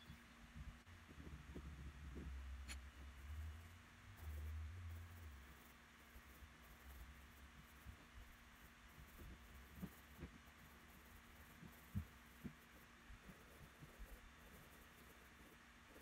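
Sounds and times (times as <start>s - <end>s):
low hum and hiss: 0.0s - 16.0s
pencil knocking on paper: 9.0s - 14.8s.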